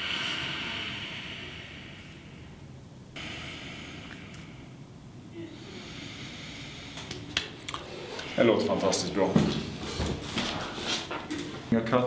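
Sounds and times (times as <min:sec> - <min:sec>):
man breathing deeply: 0:00.0 - 0:09.0.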